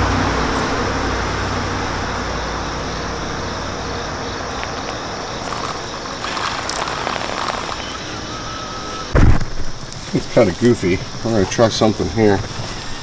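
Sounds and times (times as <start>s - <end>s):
road vehicle passing: 0.0s - 9.1s.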